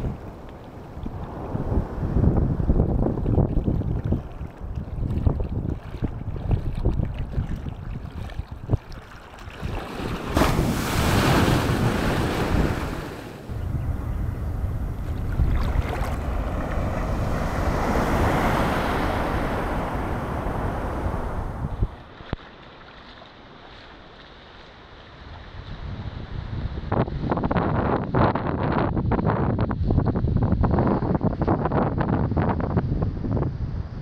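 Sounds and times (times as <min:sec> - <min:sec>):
wind buffeting microphone: 0:00.0 - 0:22.4, 0:25.2 - 0:34.0
rushes of water: 0:00.0 - 0:26.4
sea surf washing: 0:09.5 - 0:25.4.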